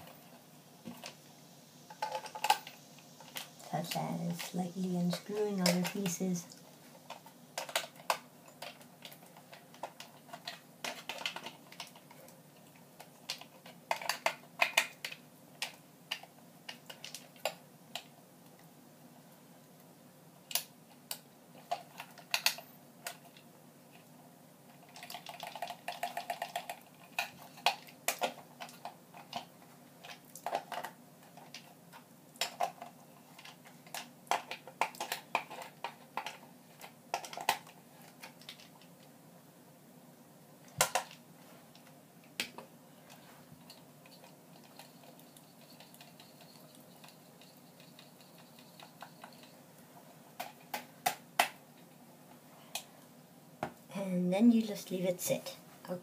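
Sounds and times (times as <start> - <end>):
small plastic parts clicking: 5.2 - 18.7, 20.5 - 24.1, 24.7 - 39.1, 40.7 - 49.6.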